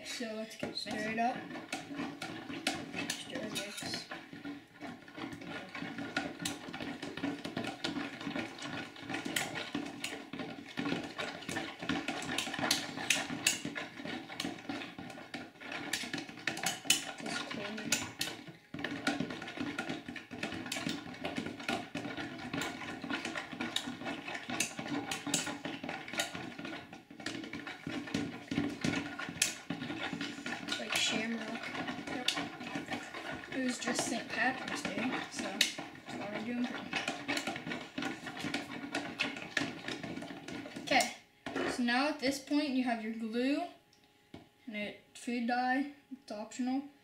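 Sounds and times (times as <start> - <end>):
spoons clinking and scraping bowl: 0.0 - 41.8.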